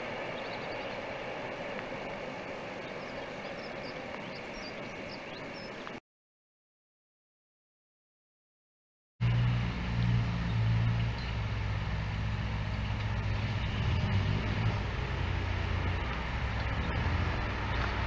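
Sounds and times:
diesel engine running: 0:00.0 - 0:05.7, 0:09.2 - 0:18.0.

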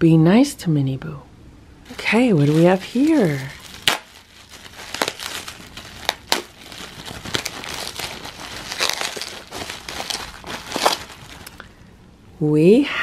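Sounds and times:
bubble wrap crackles: 0:01.9 - 0:11.8
bubble wrap crinkling: 0:01.9 - 0:11.8.

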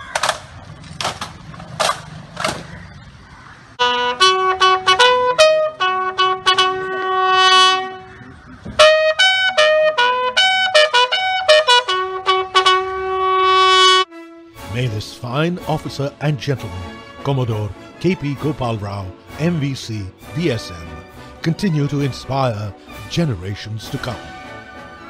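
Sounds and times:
sharp rifle slaps: 0:00.0 - 0:02.8
bugle call: 0:03.8 - 0:08.2, 0:08.8 - 0:14.1.

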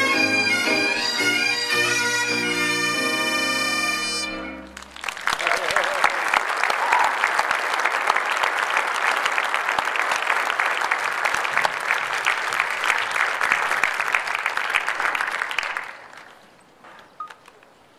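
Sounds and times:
audience applauding: 0:04.6 - 0:16.4.

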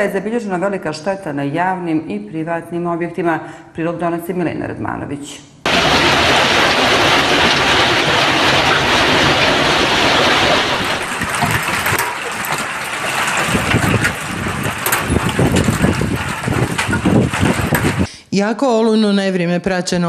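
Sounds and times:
hailstone hits: 0:05.7 - 0:18.1
heavy hail and rain: 0:05.7 - 0:18.1
wind buffeting microphone: 0:05.7 - 0:18.1.

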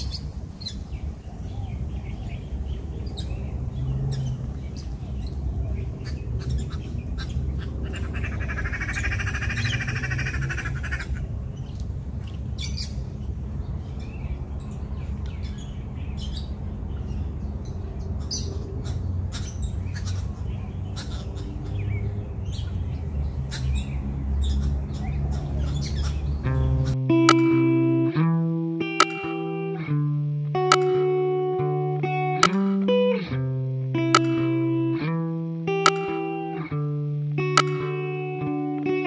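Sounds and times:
birds squawking and chirping: 0:00.0 - 0:27.0
steady low rumble: 0:00.0 - 0:29.0.

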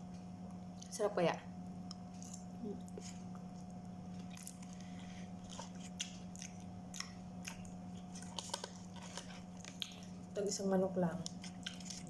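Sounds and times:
mouth chewing: 0:05.4 - 0:10.1.

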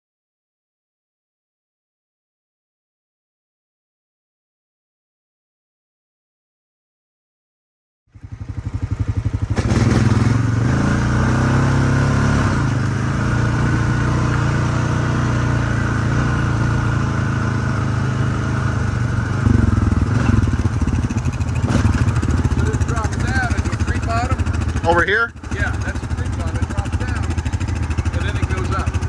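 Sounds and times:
atv engine running: 0:08.1 - 0:29.0.

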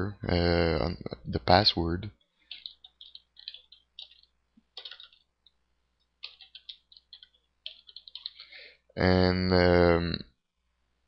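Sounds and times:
keyboard typing clicks: 0:02.5 - 0:05.3, 0:06.2 - 0:08.4.

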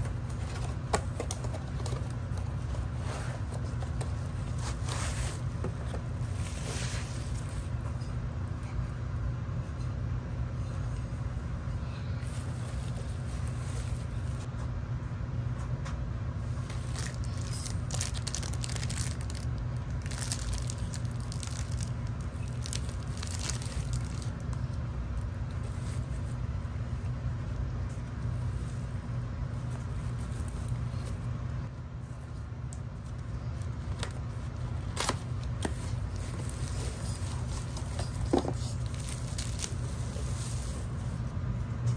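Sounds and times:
bubble wrap crinkling: 0:00.0 - 0:07.8, 0:12.2 - 0:14.5, 0:16.4 - 0:31.4, 0:32.9 - 0:41.4
steady low hum: 0:00.0 - 0:41.9.

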